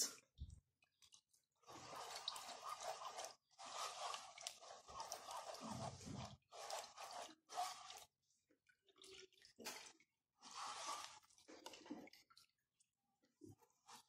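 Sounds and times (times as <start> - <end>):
wet squishes and drips: 7.9 - 10.4.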